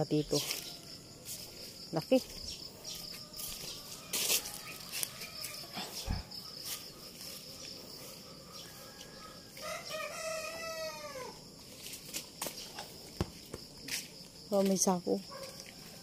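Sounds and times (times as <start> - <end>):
high insect trill: 0.0 - 16.0
rooster crowing: 2.9 - 6.3, 8.2 - 11.5, 15.4 - 16.0.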